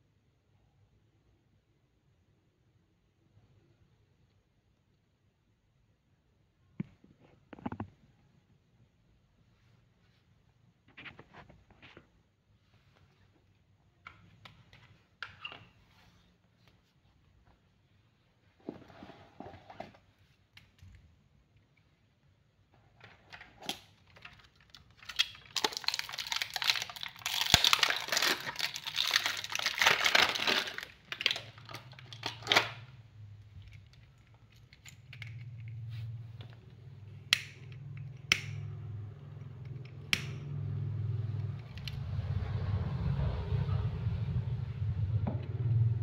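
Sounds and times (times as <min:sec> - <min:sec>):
rustling and crinkling: 0:09.6 - 0:13.6, 0:14.2 - 0:21.1, 0:22.7 - 0:37.0
low rumble: 0:40.4 - 0:46.0.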